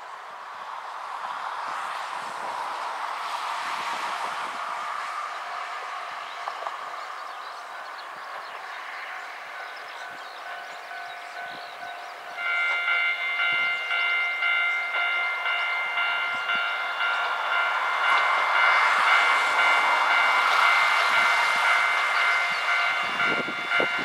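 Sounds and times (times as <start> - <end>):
train noise: 0.0 - 24.0
railway crossing alarm ringing: 4.4 - 24.0
faint crossing bell: 9.1 - 24.0.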